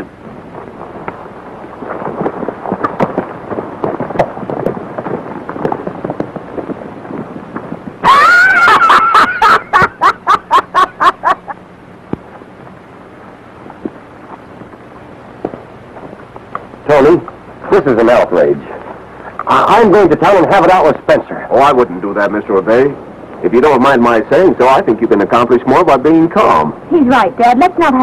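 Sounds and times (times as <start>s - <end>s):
horse hooves galloping: 0.0s - 28.0s
men laughing loudly: 8.0s - 11.6s.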